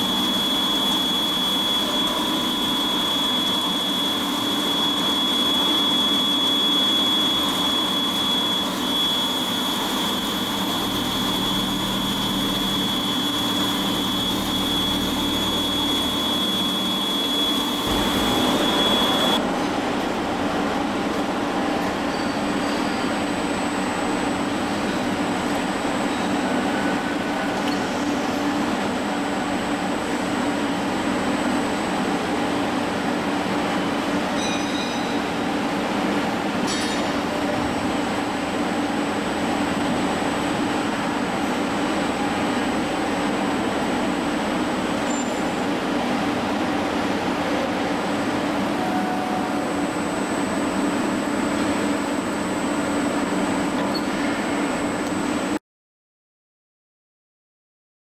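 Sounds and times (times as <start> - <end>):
milling machine high whine: 0.0 - 19.5, 37.2 - 55.6.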